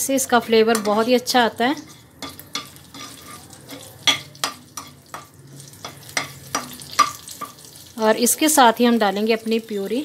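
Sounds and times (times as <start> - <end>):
oil sizzling: 0.0 - 10.0
metal spatula scraping a pan: 0.1 - 7.8.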